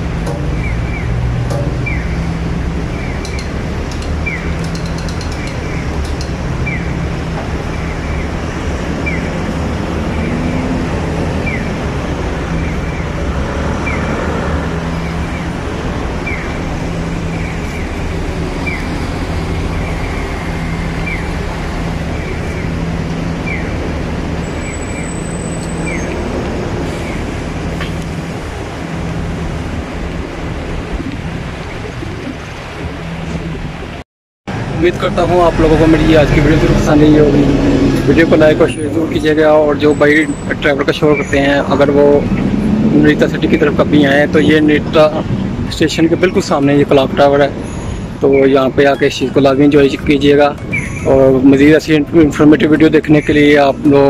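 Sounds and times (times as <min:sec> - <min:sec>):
street traffic: 0:00.0 - 0:54.0.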